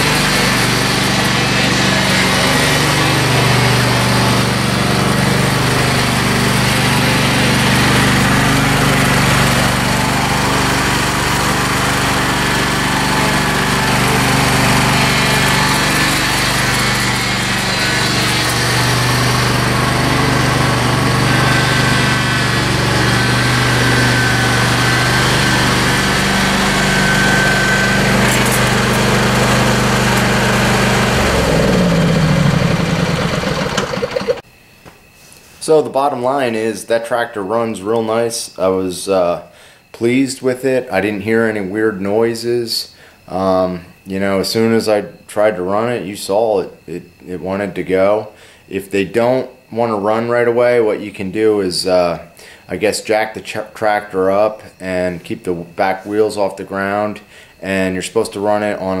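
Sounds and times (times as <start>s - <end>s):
lawn tractor engine running: 0.0s - 34.4s
faint high whine: 34.4s - 59.0s.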